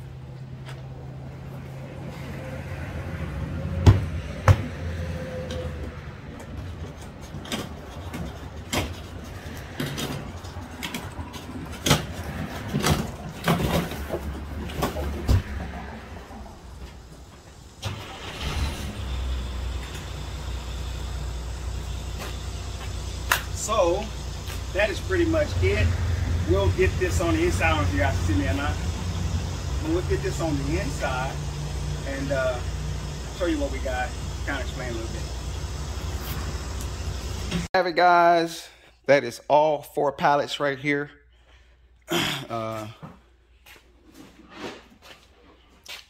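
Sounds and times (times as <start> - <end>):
cardboard boxes knocking and thumping: 11.8 - 15.7.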